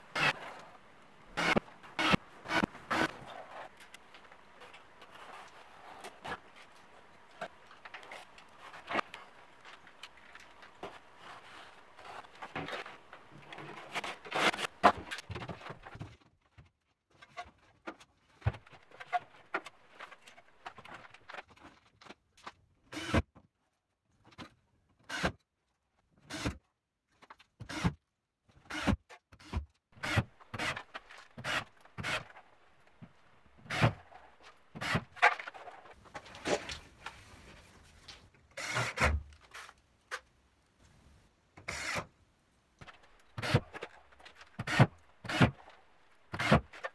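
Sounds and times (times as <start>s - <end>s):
scraping and handling noise: 0.0s - 22.7s, 30.1s - 41.9s.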